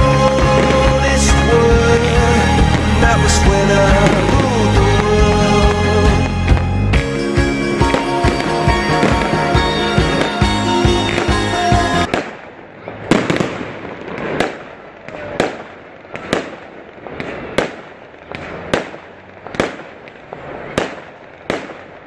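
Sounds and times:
background music: 0.0 - 12.1
fireworks exploding: 0.0 - 22.0.

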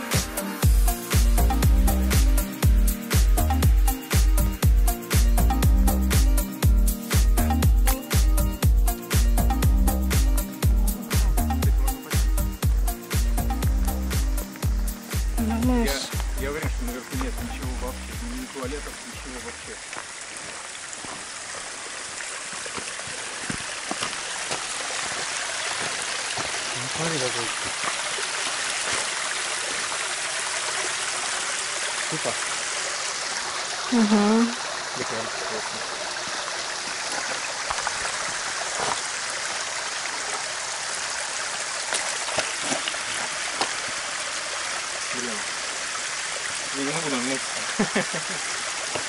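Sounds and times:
creek running over rocks: 0.0 - 49.0
footsteps on loose stones: 16.0 - 17.4, 19.9 - 21.8, 22.5 - 26.8, 37.7 - 39.6.

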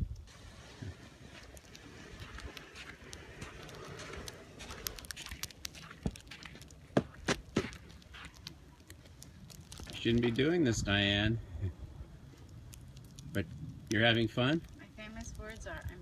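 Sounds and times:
footsteps in snow: 0.5 - 8.4.

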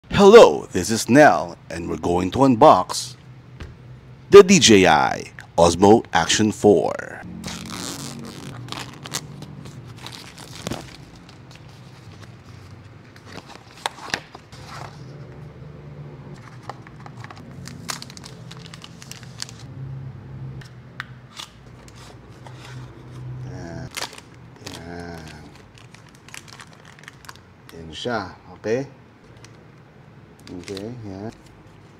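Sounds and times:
plastic wrap crinkling: 7.5 - 14.6, 16.4 - 19.7, 23.9 - 27.8.

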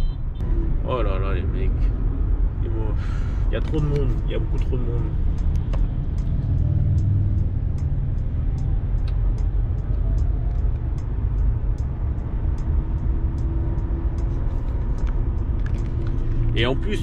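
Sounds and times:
lorry diesel engine rumble: 0.0 - 17.0
road noise: 0.0 - 17.0
faint light ticks: 3.6 - 11.1.

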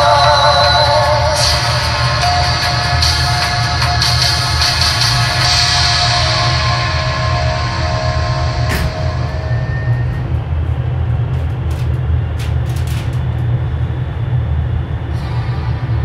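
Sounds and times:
background music: 0.0 - 10.4
ventilation fans rumbling: 0.0 - 16.0.

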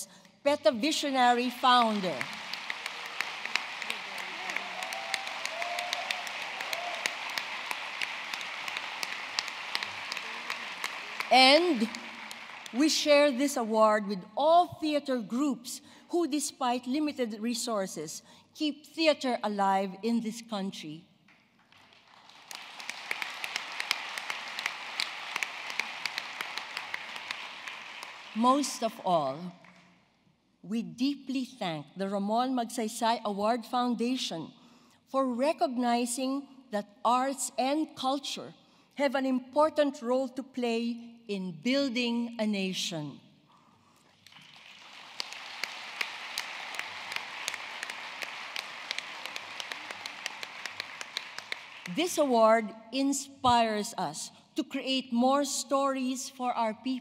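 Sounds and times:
loud close claps: 1.8 - 12.8, 21.3 - 28.4, 44.1 - 52.0
audience applauding: 1.8 - 12.9, 21.7 - 28.4, 44.2 - 52.0.

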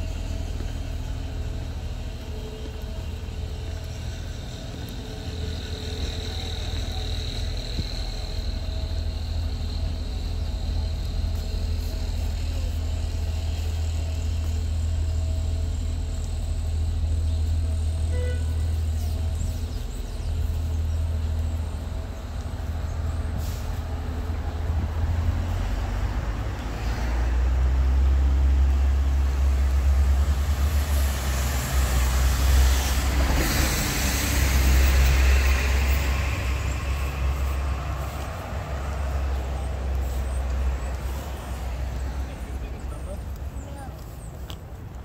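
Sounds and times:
low rumble of traffic: 0.0 - 45.0
cars passing: 20.1 - 45.0.

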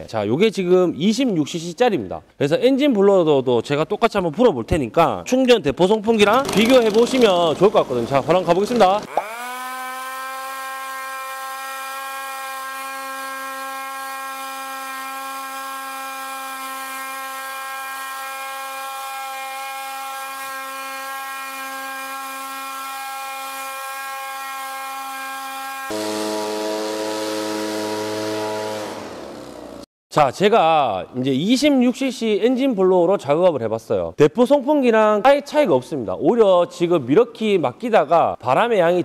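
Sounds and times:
leaf blower engine whining: 6.2 - 29.9.

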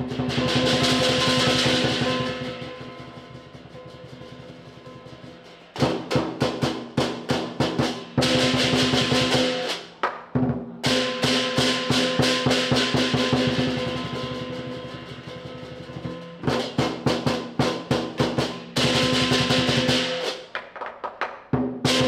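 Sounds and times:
big drum beating: 0.0 - 9.7, 10.4 - 20.2
cymbals crashing: 0.0 - 9.9, 10.8 - 20.5
gong ringing: 0.5 - 5.5.

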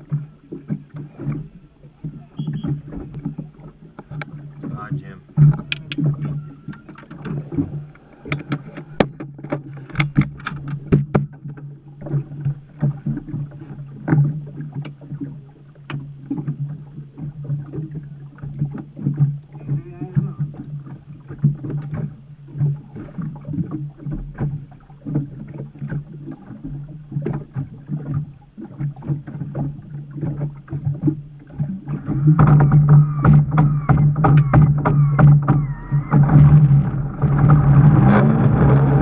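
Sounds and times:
boat engine idling: 0.0 - 39.0
hull knocks and slaps: 5.4 - 12.2, 32.0 - 38.0.

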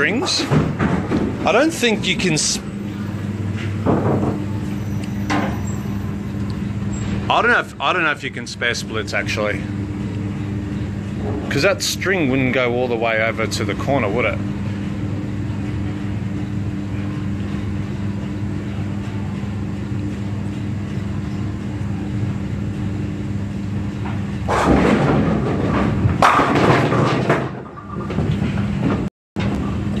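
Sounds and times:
pinsetter machinery hum: 0.0 - 30.0
bowling pins crashing: 24.4 - 29.1.

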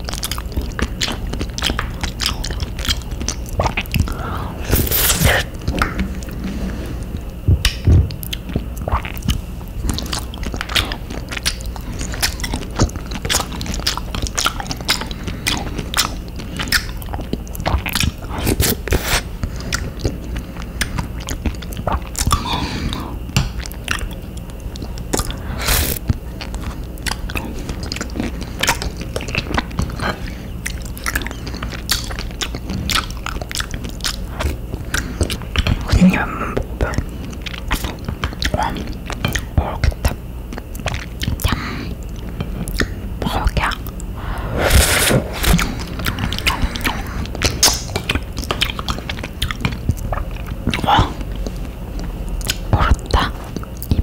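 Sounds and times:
person chewing: 0.0 - 54.0
wet mouth clicks and smacks: 30.6 - 34.2, 45.6 - 54.0.

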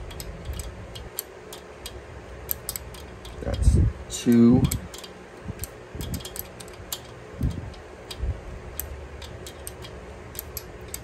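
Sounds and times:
wrench metal clicks: 0.0 - 11.0.

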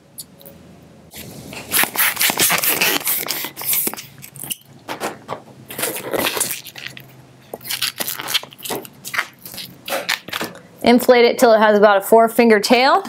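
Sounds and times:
balloon latex rubbing and squeaking: 1.2 - 4.6, 5.7 - 10.6.

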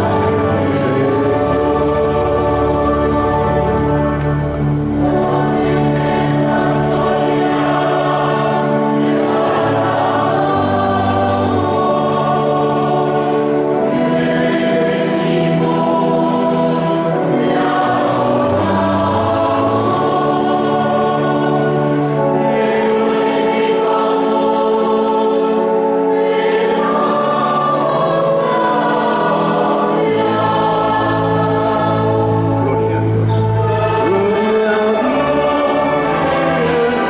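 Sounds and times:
children's choir singing: 0.0 - 37.0
small orchestra playing: 0.0 - 37.0.

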